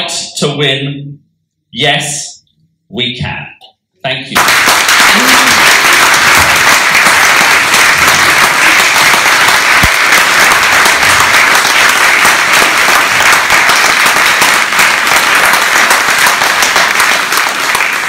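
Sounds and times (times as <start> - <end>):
audience applauding: 4.4 - 18.0.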